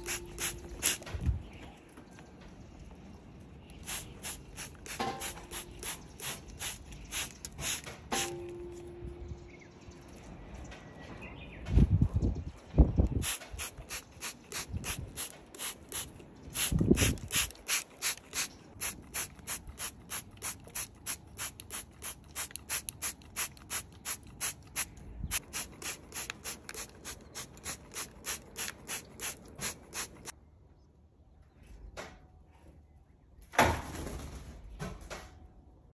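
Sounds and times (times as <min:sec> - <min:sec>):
trigger spray bottle squirting: 0:00.0 - 0:01.1, 0:03.8 - 0:08.4, 0:13.2 - 0:30.3.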